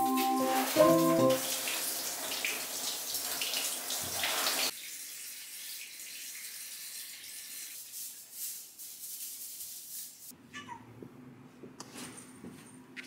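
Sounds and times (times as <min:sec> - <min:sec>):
running water from tap: 0:00.0 - 0:07.8.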